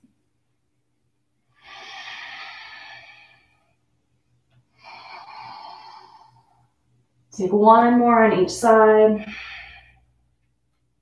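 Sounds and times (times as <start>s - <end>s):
woman breathing through nose: 1.5s - 3.8s, 4.7s - 6.8s, 9.2s - 10.2s.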